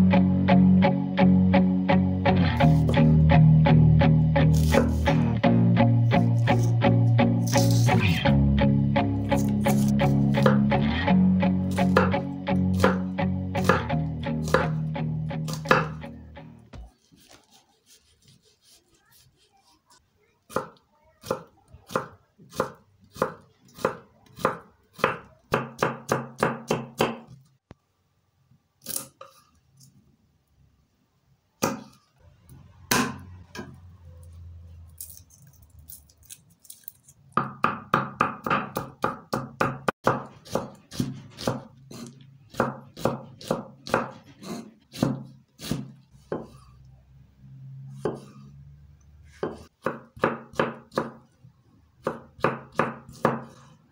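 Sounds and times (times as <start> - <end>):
knife chopping on wooden board: 4.5 - 5.1, 9.4 - 10.7, 11.8 - 14.7, 15.5 - 16.0, 20.5 - 27.4, 37.4 - 46.6, 48.0 - 48.3, 49.3 - 51.2, 52.0 - 53.7.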